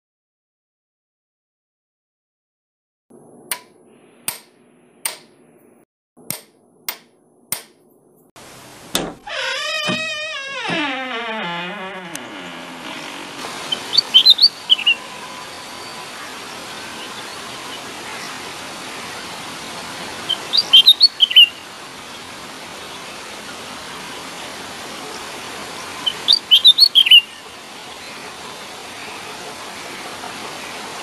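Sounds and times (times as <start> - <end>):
bird chirping: 13.6 - 15.1, 20.3 - 21.6, 26.0 - 27.4.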